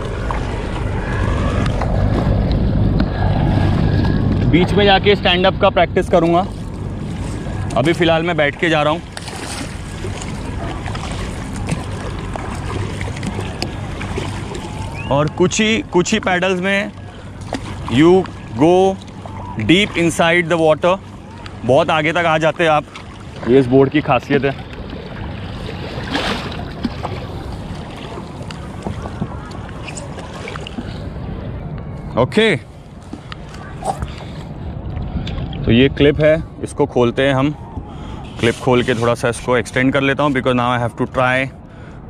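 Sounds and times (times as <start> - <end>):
paddle strokes splashing: 0.0 - 4.5, 6.2 - 31.2
wind on microphone: 0.0 - 16.2, 33.0 - 39.5
water washing along board: 6.5 - 30.9.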